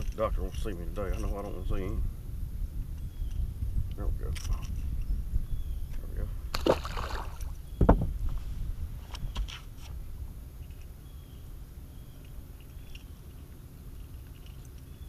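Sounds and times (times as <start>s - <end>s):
wind and water rumble: 0.0s - 15.0s
heavy thump on boat deck: 7.8s - 8.4s.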